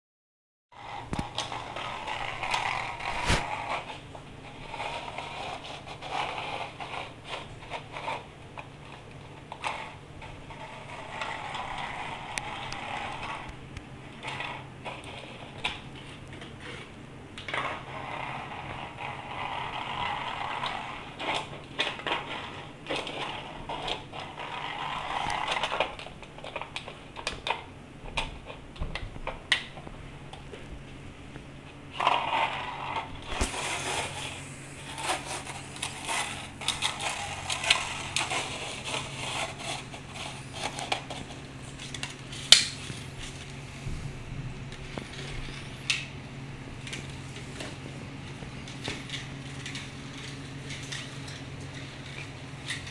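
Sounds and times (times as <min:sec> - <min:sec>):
plastic lid scraping on tile floor: 0:00.8 - 0:27.7, 0:31.9 - 0:44.0
low hum: 0:29.8 - 0:52.8.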